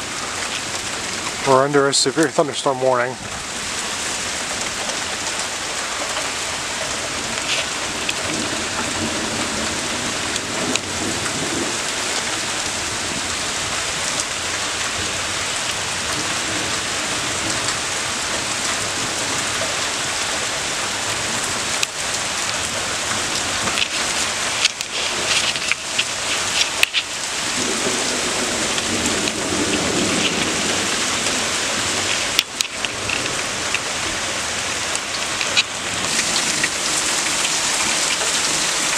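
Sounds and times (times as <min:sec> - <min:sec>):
heavy rain falling: 0:00.0 - 0:38.9
low thunder rumbles: 0:27.2 - 0:32.2.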